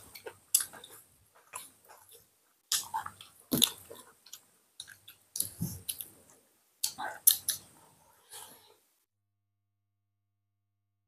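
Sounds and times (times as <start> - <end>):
chewing and lip-smacking: 0.1 - 6.2, 6.8 - 7.7.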